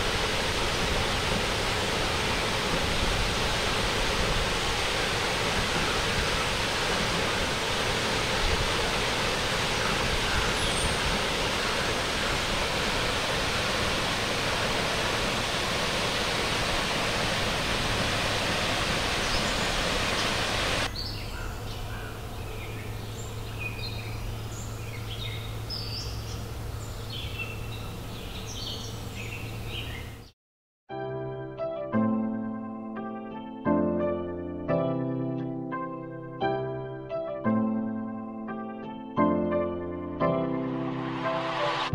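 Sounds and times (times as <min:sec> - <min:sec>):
waterfall rushing: 0:00.0 - 0:20.9, 0:40.6 - 0:41.9.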